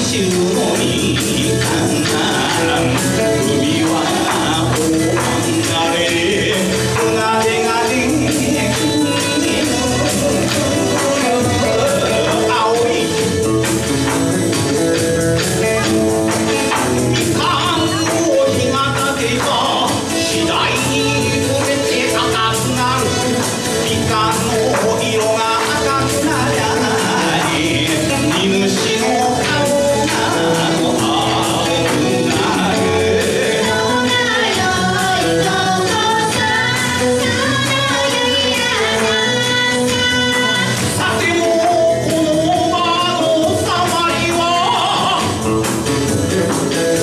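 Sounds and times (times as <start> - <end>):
folk band accompaniment: 0.0 - 47.0
man singing into microphone: 0.0 - 47.0.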